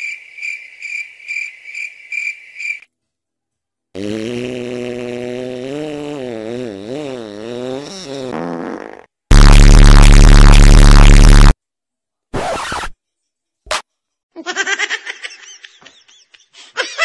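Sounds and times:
distorted blast: 9.3 - 11.6
high choppy laugh: 14.4 - 17.0.

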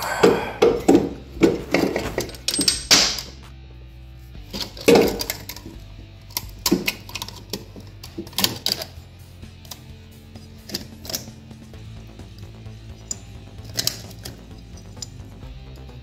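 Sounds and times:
metallic clinks and knocks: 0.6 - 3.5, 4.5 - 9.0, 13.0 - 15.3.

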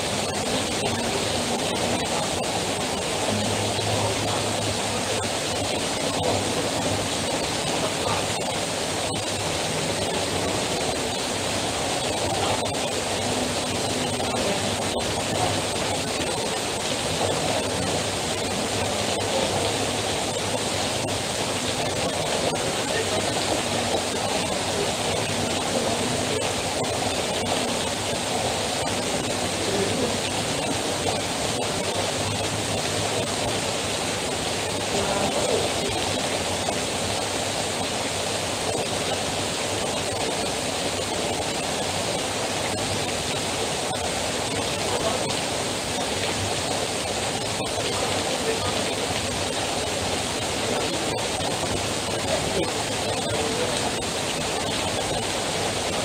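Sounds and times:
heavy rain falling: 0.0 - 56.0
water pouring off roof: 0.0 - 56.0.

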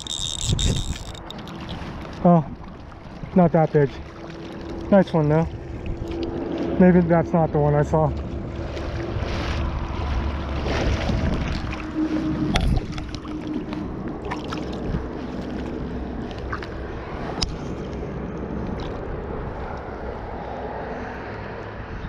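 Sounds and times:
water splashing and sloshing: 0.0 - 21.9.

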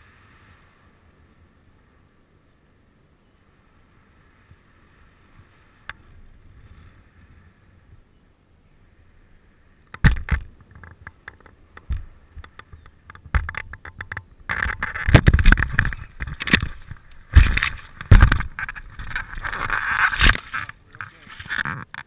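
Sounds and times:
loud wind: 0.0 - 22.0
knocks and rustles: 9.9 - 22.0
heavy thumps on ground: 14.5 - 19.2.

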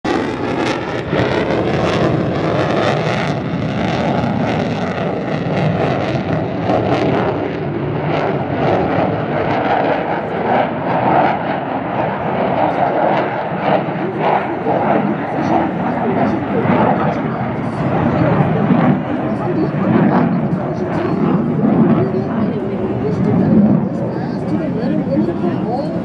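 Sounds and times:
jet engine rumble: 0.0 - 26.0
jet engine crackle: 0.1 - 26.0.

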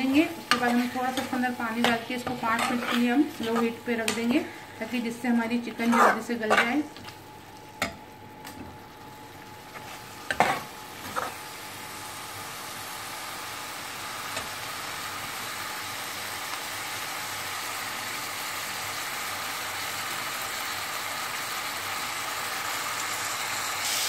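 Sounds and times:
chicken sizzling in oil: 0.0 - 24.0.

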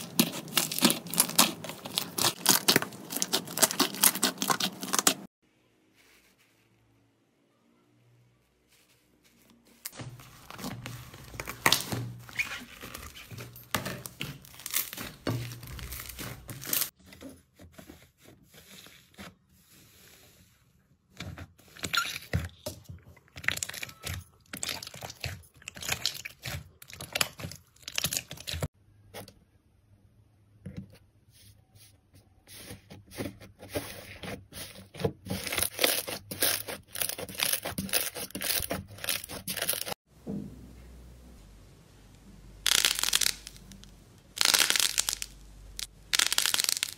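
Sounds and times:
slime crackling and tearing: 0.0 - 5.3, 14.4 - 16.9, 35.3 - 40.0, 42.7 - 46.9.

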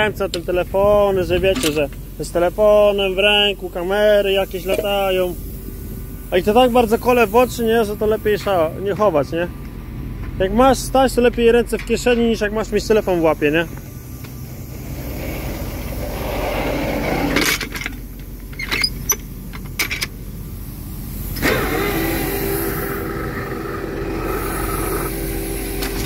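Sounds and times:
machine hum with clear tone: 0.0 - 26.0
tractor engine droning: 0.0 - 26.0
metallic clanks and knocks: 17.3 - 20.2.

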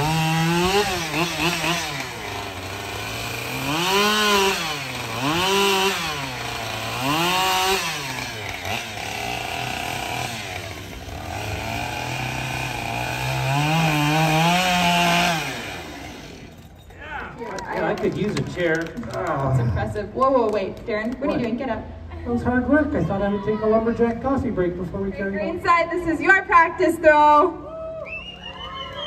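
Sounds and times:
chainsaw cutting log: 0.0 - 16.7.

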